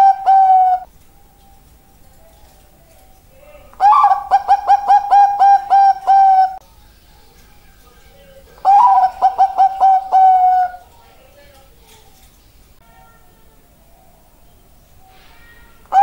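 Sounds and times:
dove cooing: 0:00.0 - 0:06.6, 0:08.1 - 0:11.3.

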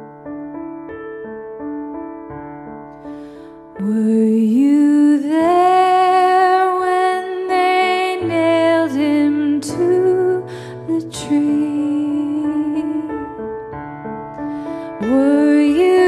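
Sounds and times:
woman singing a hymn: 0:03.8 - 0:13.4, 0:14.9 - 0:16.0.

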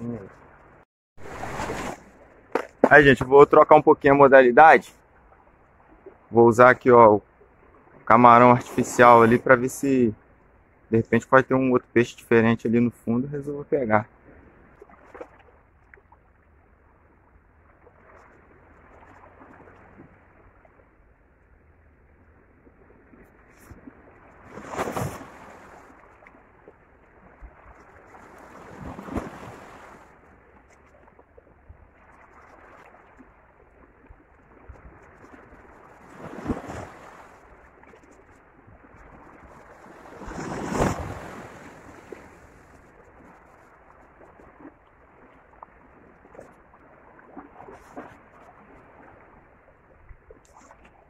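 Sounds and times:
waves splashing against rocks: 0:01.2 - 0:04.1, 0:23.5 - 0:26.4, 0:27.2 - 0:30.2, 0:34.6 - 0:38.2, 0:38.9 - 0:43.8.

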